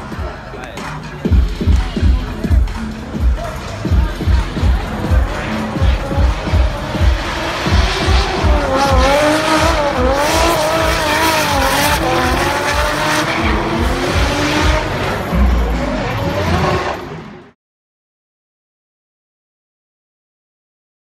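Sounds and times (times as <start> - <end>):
thumping music beat: 0.0 - 17.2
car engines revving high: 0.0 - 17.6.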